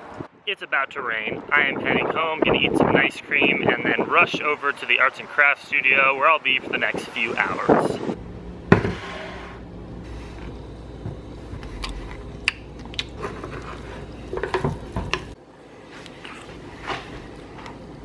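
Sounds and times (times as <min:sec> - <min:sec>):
low steady hum: 0:05.7 - 0:18.0.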